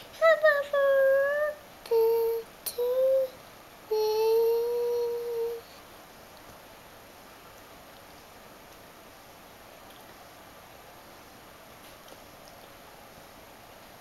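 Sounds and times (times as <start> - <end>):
toddler humming: 0.2 - 5.6.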